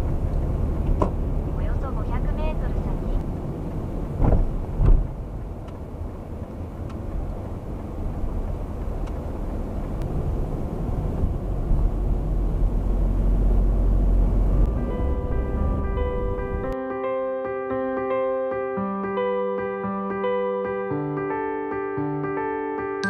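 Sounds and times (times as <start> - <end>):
car engine and road rumble: 0.0 - 16.8.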